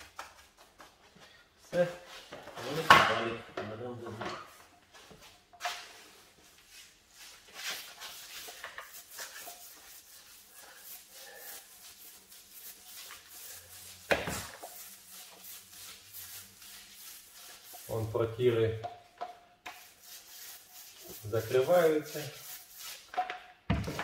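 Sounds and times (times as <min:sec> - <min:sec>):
paint roller rubbing: 0:05.2 - 0:18.8, 0:19.7 - 0:23.2.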